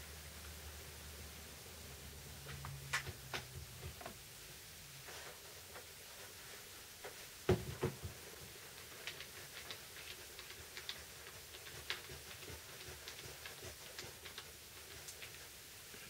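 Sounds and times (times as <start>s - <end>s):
tool knocking on wooden workbench: 7.5s - 8.1s
light irregular ticks and taps: 8.0s - 15.4s.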